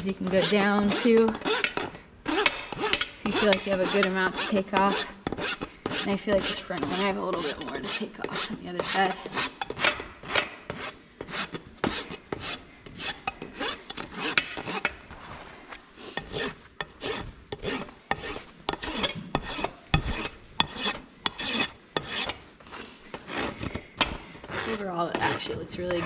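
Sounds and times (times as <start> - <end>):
rasp filing hoof: 0.0 - 26.0.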